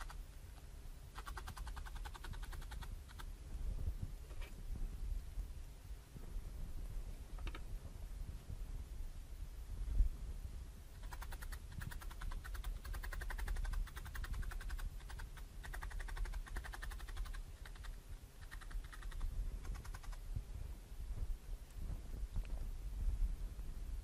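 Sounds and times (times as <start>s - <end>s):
felting needle clicking: 1.2s - 3.3s, 11.0s - 20.2s.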